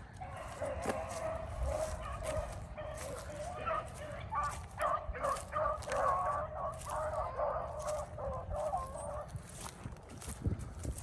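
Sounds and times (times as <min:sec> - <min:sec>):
pack of dogs baying: 0:00.0 - 0:09.7.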